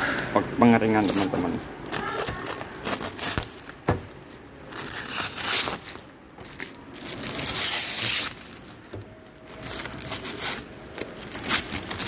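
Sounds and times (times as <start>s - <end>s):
plastic film crinkling: 0.9s - 12.0s.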